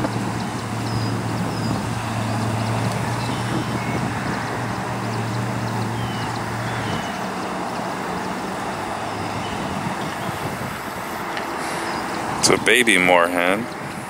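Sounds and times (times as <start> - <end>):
rushing outdoor background noise: 0.0 - 14.0.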